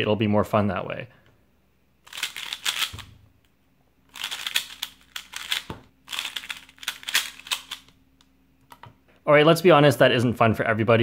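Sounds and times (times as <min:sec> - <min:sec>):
plastic puzzle cube clicking: 0:02.1 - 0:03.1, 0:04.1 - 0:07.9.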